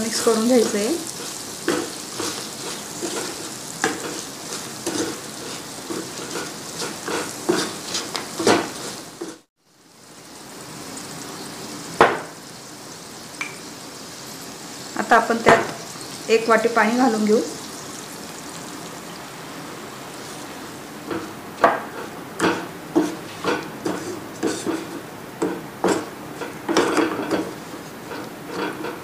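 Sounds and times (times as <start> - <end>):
wooden spatula scraping a pan: 0.0 - 9.5, 20.1 - 29.0
food sizzling in hot oil: 0.0 - 29.0
spatula knocking on pan: 3.0 - 4.2, 12.0 - 12.4, 21.1 - 27.5.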